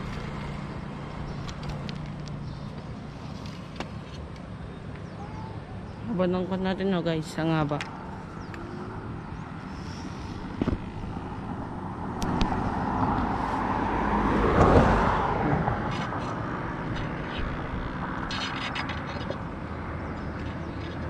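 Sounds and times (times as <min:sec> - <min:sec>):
outdoor background noise: 0:00.0 - 0:21.0
vehicle passing by: 0:07.5 - 0:21.0.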